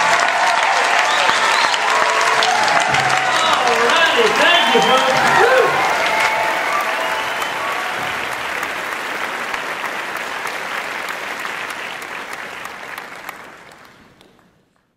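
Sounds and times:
audience applauding: 0.0 - 14.9.

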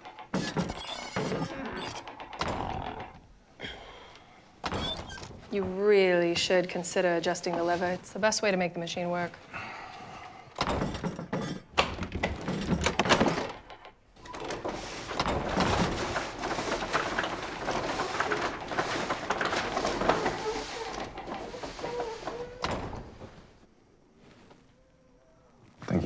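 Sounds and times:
short squeaky tones: 0.3 - 2.1
paper bag machine clattering: 14.3 - 22.6.

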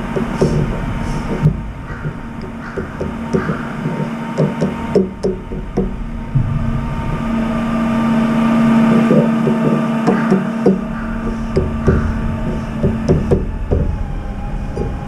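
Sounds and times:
steady low hum: 0.0 - 15.0
bird bill pecking metal dish: 1.9 - 5.3.

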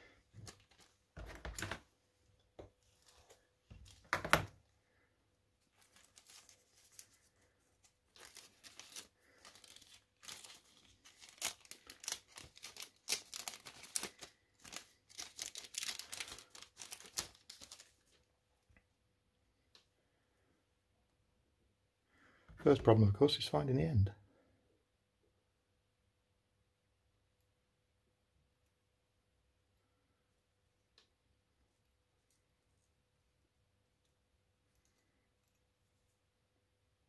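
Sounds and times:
plastic bag crinkling: 5.7 - 18.2.

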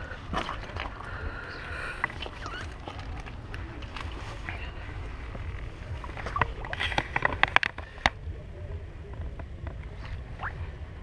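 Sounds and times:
fish splashing in water: 0.0 - 4.6
steady low rumble: 0.0 - 11.0.

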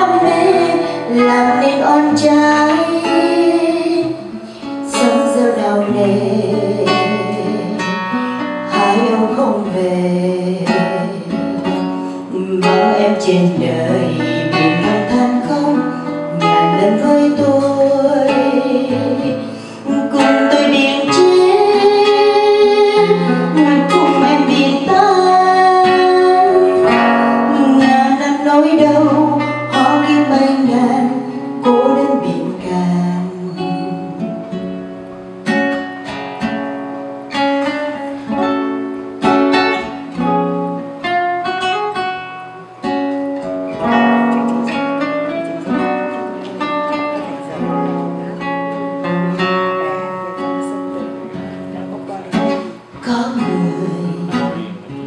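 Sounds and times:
woman singing: 0.0 - 34.7, 52.7 - 55.0
acoustic guitar plucked notes: 0.0 - 55.0.

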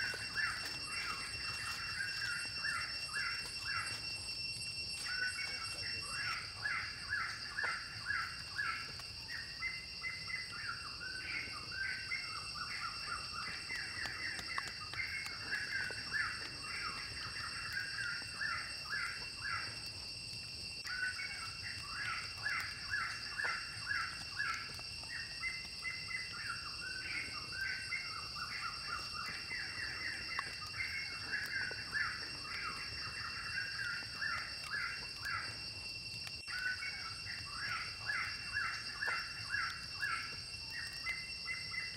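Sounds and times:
steady high-pitched drone: 0.0 - 24.8.

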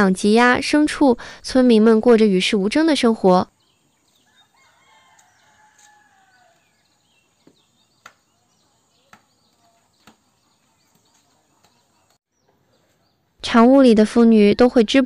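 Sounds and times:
rooster crowing: 4.2 - 6.9.

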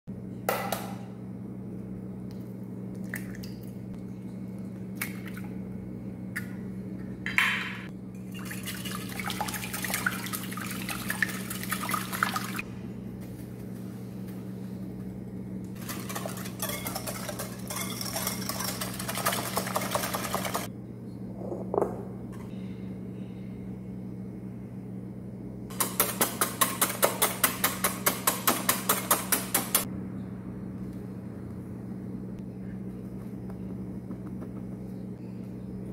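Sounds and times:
steady low hum: 0.1 - 35.9
whisk beating eggs in glass bowl: 15.8 - 20.7
knocks and taps: 33.4 - 34.9.

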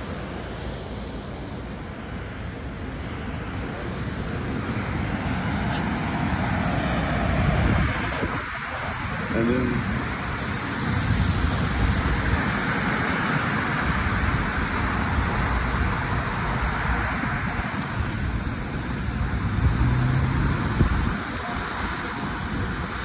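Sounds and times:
low engine hum: 0.0 - 23.0
road traffic noise: 0.0 - 23.0.

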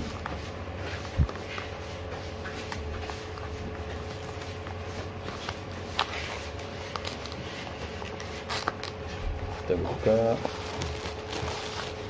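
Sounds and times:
packaging rustling and clicking: 5.3 - 12.0.

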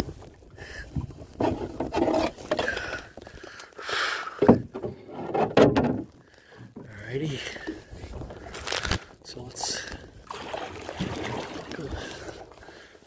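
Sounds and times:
paddle knocking against canoe: 4.4 - 6.9
paddle splashing through water: 9.9 - 12.9.

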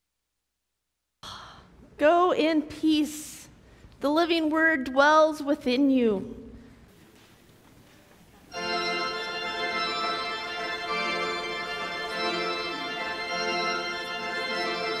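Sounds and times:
organ playing full chords: 8.5 - 15.0.

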